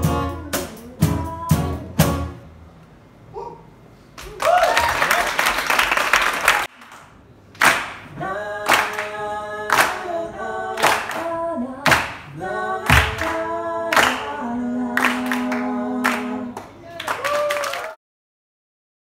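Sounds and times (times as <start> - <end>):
woman singing through pa: 0.0 - 2.3, 8.2 - 16.6
hand claps: 5.6 - 8.1, 8.7 - 9.1, 9.7 - 10.0, 10.8 - 11.3, 11.9 - 12.3, 12.9 - 14.3.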